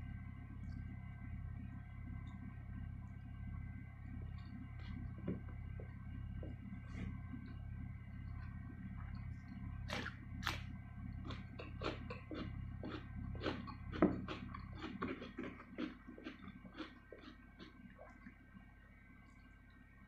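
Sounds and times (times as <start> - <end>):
faint low hum: 0.0 - 20.0
crunching cucumber: 9.8 - 18.3.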